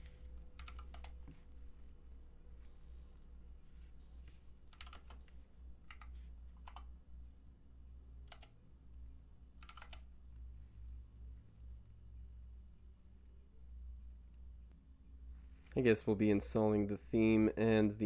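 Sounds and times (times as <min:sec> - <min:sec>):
low steady hum: 0:00.0 - 0:18.0
keyboard keystrokes: 0:04.7 - 0:05.3, 0:05.9 - 0:06.9, 0:08.3 - 0:08.5, 0:09.6 - 0:10.0.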